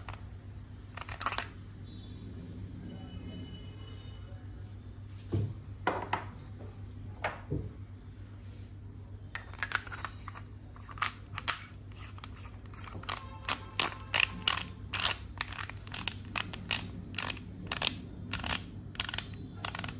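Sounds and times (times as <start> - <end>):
small hard parts clicking: 0.0 - 0.3, 1.0 - 1.6, 10.8 - 19.9.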